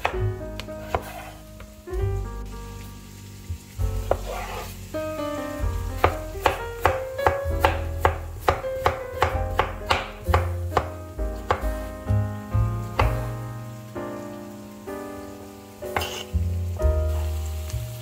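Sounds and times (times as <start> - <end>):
knife cutting on bamboo board: 0.0 - 1.4, 4.0 - 4.7, 6.0 - 10.9, 16.0 - 16.3.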